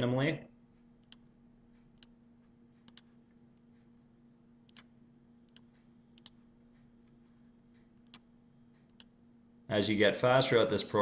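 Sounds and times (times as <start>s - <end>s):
faint steady hum: 0.0s - 11.0s
computer mouse clicks: 1.0s - 2.2s, 2.8s - 3.2s, 4.7s - 4.9s, 5.5s - 9.2s.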